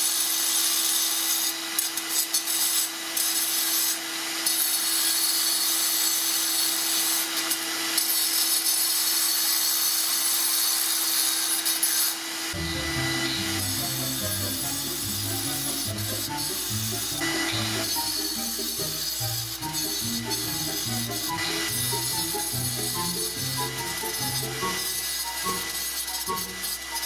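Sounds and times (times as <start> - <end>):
angle grinder grinding concrete: 0.0 - 27.0
music: 12.6 - 27.0.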